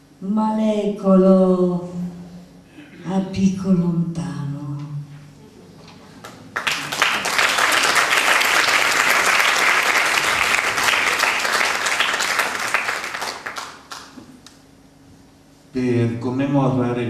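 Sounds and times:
audience applauding: 0:06.2 - 0:14.2.

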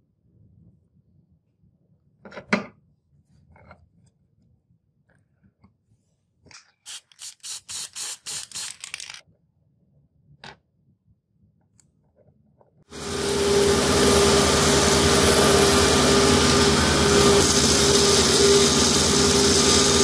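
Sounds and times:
aerosol spray can hissing: 0:06.9 - 0:08.9.

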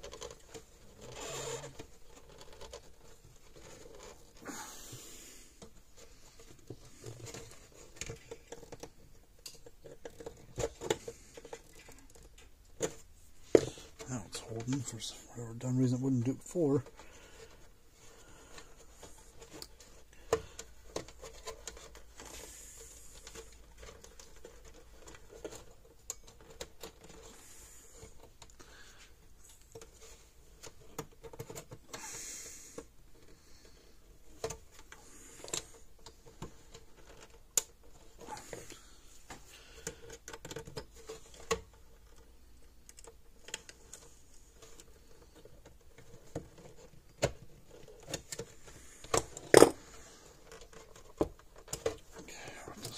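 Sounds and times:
pliers clicking and scraping on wires: 0:39.8 - 0:52.1.

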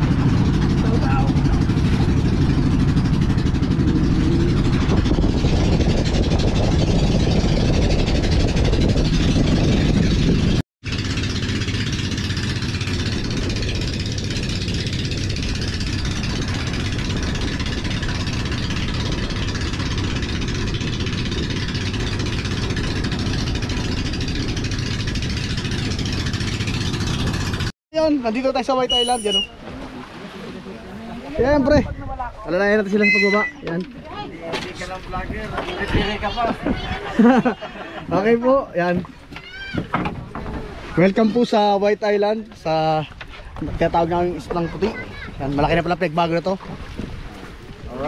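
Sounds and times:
rushing wind: 0:00.0 - 0:27.7
boat engine running: 0:00.0 - 0:48.0
rushing water: 0:12.0 - 0:48.0.

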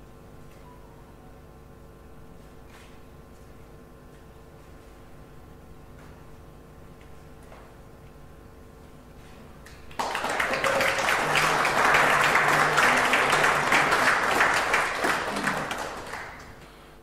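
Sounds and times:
audience applauding: 0:09.7 - 0:16.8.

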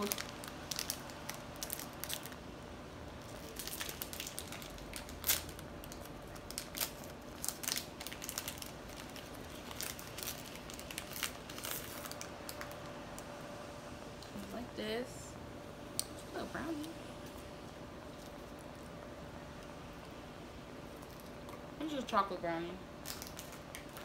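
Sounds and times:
plastic wrapper crinkling: 0:00.0 - 0:02.5, 0:03.2 - 0:13.3, 0:23.0 - 0:24.0.

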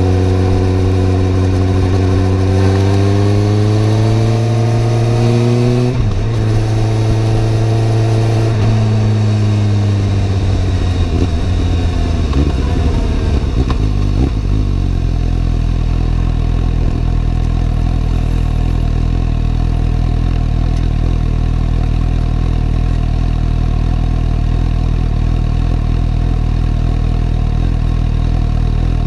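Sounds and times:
motorcycle engine idling: 0:08.6 - 0:29.0.

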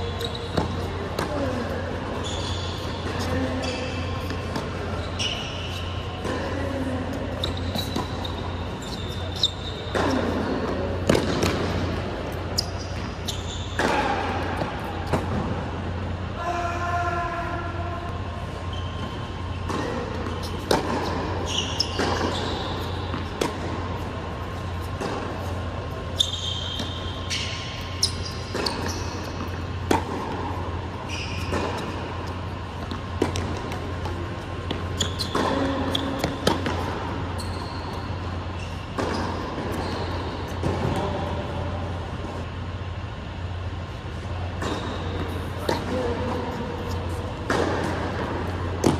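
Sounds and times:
short high squeaks: 0:00.0 - 0:00.9, 0:02.2 - 0:10.3, 0:12.5 - 0:14.1, 0:18.6 - 0:23.1, 0:26.1 - 0:29.5, 0:31.0 - 0:32.0, 0:34.9 - 0:36.6, 0:37.2 - 0:40.6
ball bounces on hard court: 0:00.0 - 0:15.6, 0:19.0 - 0:24.2, 0:24.8 - 0:25.6, 0:26.2 - 0:37.8, 0:38.7 - 0:41.3, 0:44.5 - 0:48.9
steady low hum: 0:00.0 - 0:48.9.

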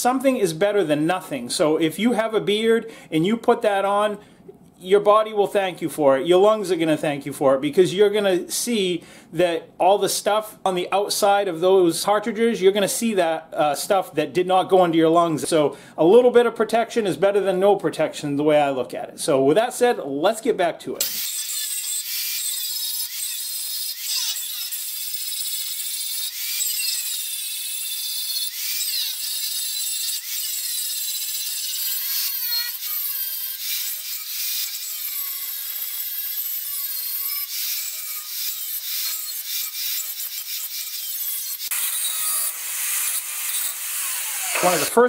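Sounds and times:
angle grinder grinding metal: 0:21.0 - 0:45.0.

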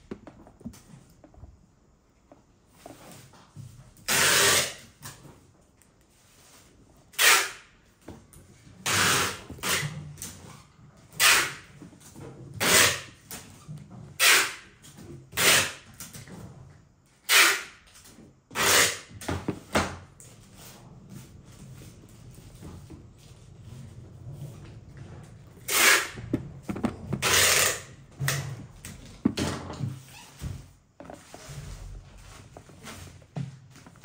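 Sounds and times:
sneaker handling scrapes: 0:20.4 - 0:28.4, 0:29.0 - 0:34.0.

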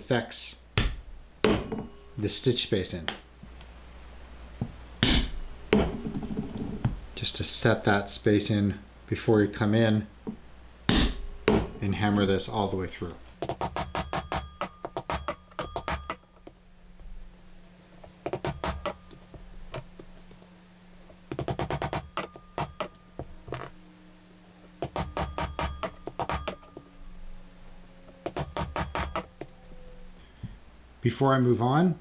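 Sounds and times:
mallet striking pricking iron: 0:00.8 - 0:02.1, 0:05.0 - 0:06.1, 0:10.9 - 0:11.8, 0:13.5 - 0:16.2.

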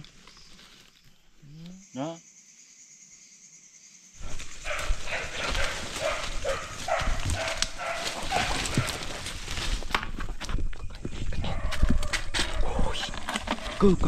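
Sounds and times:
rustling handling noise: 0:04.2 - 0:11.2
dog barking: 0:04.6 - 0:09.1.

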